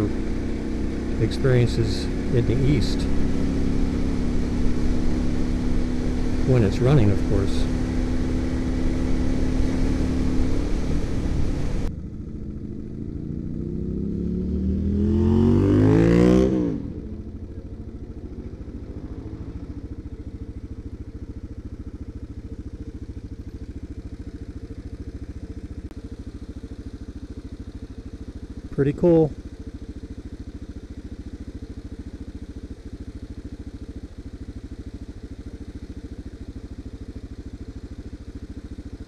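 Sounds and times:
motorcycle engine revving: 0:00.0 - 0:39.0.

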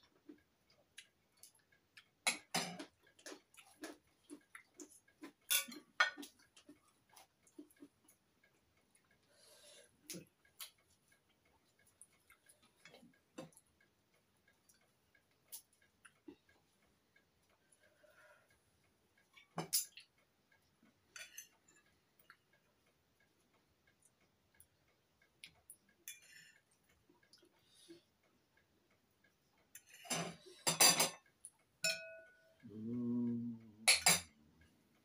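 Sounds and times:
cutlery clinking on plates: 0:02.2 - 0:04.0, 0:05.2 - 0:06.4, 0:21.1 - 0:21.7, 0:29.8 - 0:31.2, 0:31.8 - 0:32.5, 0:33.8 - 0:34.4
low voice hum: 0:32.6 - 0:34.4.

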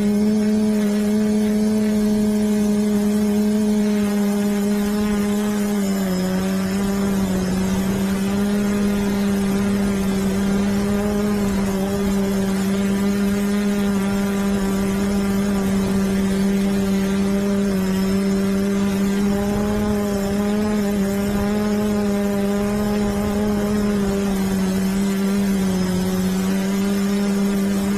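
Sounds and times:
quadcopter propellers humming: 0:00.0 - 0:27.9.

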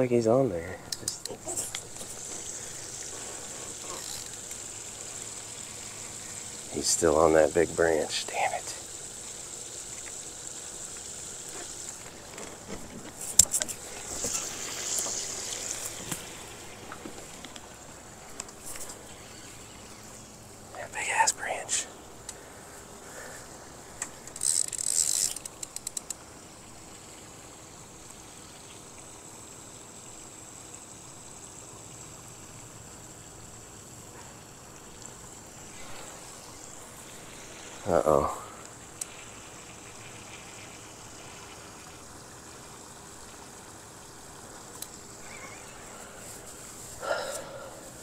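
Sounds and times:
outdoor background hiss: 0:00.0 - 0:48.0
fishing reel clicking: 0:03.7 - 0:04.6, 0:24.0 - 0:26.2
thin high whine: 0:13.2 - 0:23.4, 0:44.8 - 0:48.0.

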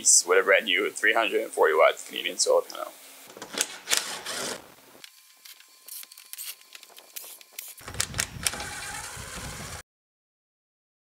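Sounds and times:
power drill motor running: 0:03.5 - 0:09.8
screwdriver bit scraping screws: 0:03.6 - 0:04.6.

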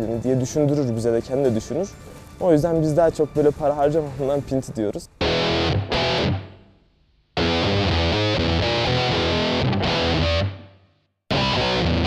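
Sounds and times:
distorted electric guitar music: 0:05.2 - 0:12.0.

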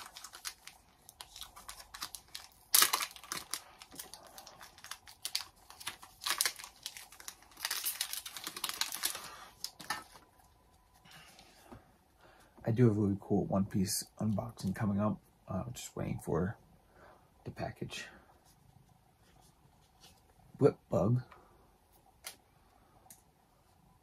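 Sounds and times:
foil wrapper crinkling and tearing: 0:00.0 - 0:10.2.

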